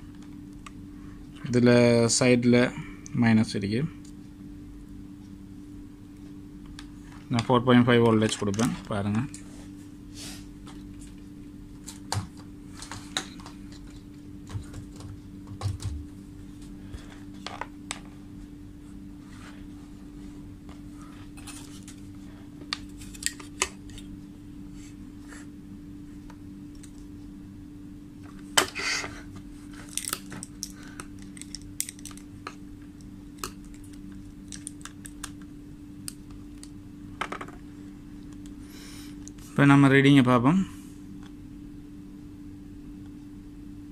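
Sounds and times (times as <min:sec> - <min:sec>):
steady low hum: 0:00.0 - 0:43.9
clicks and rattles of wires: 0:06.7 - 0:09.4, 0:26.7 - 0:27.1, 0:29.8 - 0:37.6.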